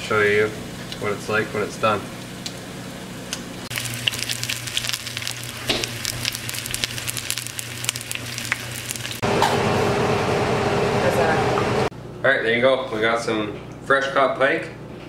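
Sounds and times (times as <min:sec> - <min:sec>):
fish frying in hot oil: 0:03.7 - 0:09.2.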